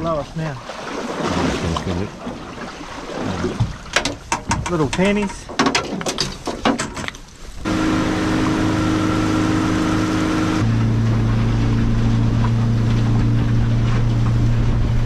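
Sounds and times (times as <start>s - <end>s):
outboard motor running: 7.6s - 15.0s.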